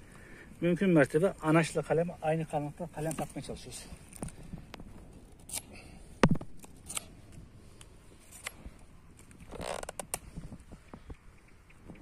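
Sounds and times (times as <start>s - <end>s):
creaking scrape of wood: 9.3s - 10.6s.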